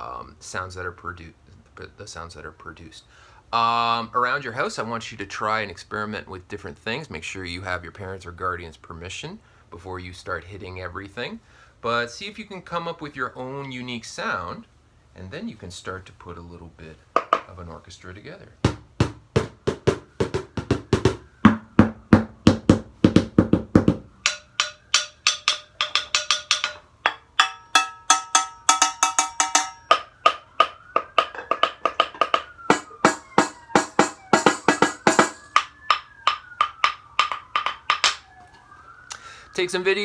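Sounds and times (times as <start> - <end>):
stick knocking on household objects: 17.2 - 17.5, 18.6 - 38.4
stick striking ringing saucepan: 24.2 - 38.2.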